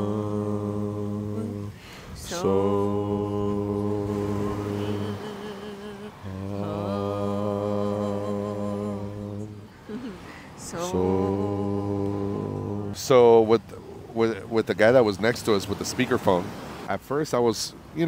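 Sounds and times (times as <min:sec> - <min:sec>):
voices chanting low notes: 0:00.0 - 0:14.5
short breath: 0:01.8 - 0:02.2, 0:09.8 - 0:10.6.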